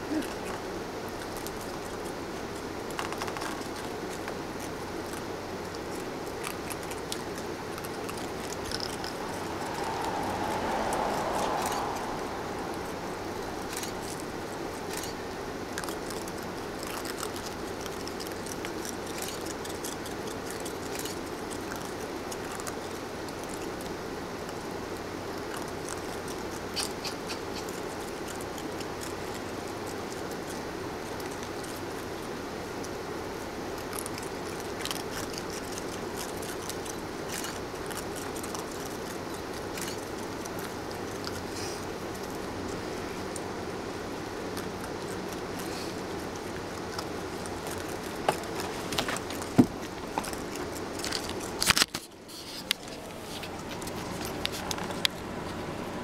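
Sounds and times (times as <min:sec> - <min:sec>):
steady background hiss: 0:00.0 - 0:56.0
broad swell of noise: 0:07.2 - 0:17.0.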